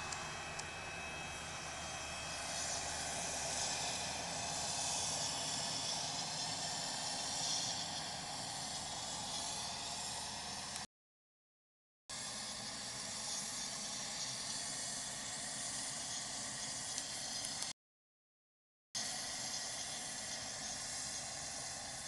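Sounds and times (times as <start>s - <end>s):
truck engine hum: 0.0s - 10.9s
spray hissing: 2.2s - 10.2s, 19.0s - 22.0s.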